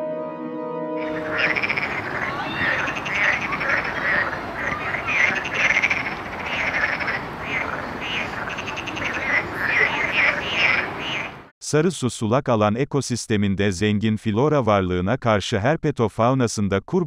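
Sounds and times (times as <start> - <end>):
frogs calling: 1.0 - 11.5.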